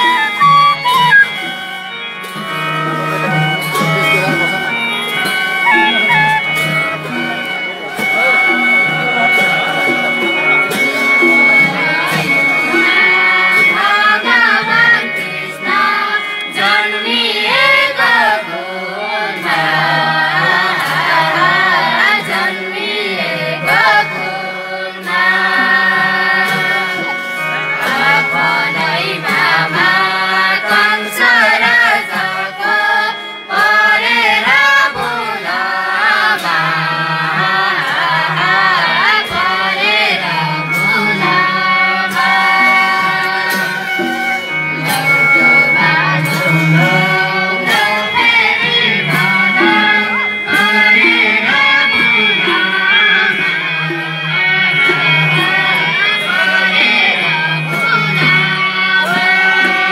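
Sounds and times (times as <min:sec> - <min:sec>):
women singing folk song: 0:13.4 - 0:27.1, 0:27.9 - 0:44.2, 0:44.8 - 0:53.5.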